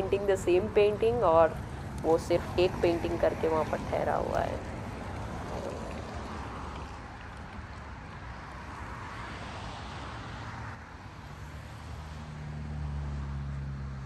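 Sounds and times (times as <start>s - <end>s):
passing traffic: 0.0s - 14.0s
vehicle engine hum: 0.0s - 14.0s.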